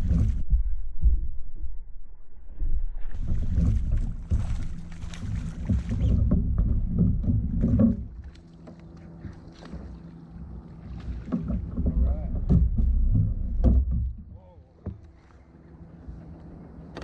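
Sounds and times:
low rumble: 0.0 - 17.0
fish splashing at water surface: 3.2 - 6.3.

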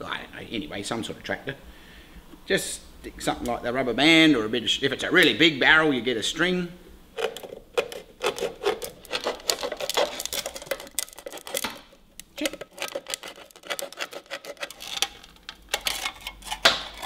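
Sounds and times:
knife cutting metal tin: 7.2 - 17.0.

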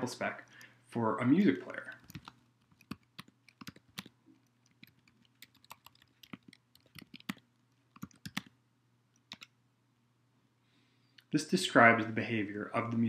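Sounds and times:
keyboard typing: 1.9 - 8.5, 9.2 - 9.5.

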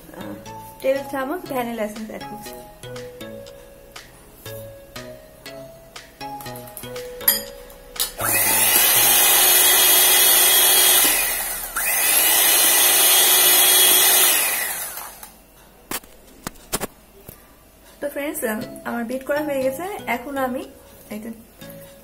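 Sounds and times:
electric hand mixer running: 8.1 - 15.4.

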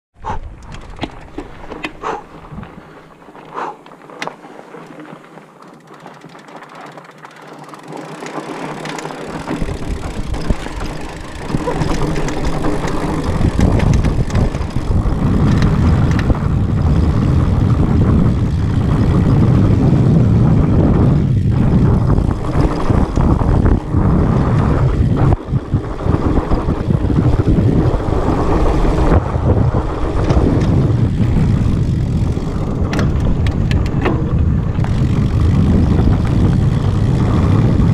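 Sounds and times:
wind buffeting microphone: 0.2 - 3.8, 9.2 - 37.9
bike clicks and rattles: 0.2 - 37.9.

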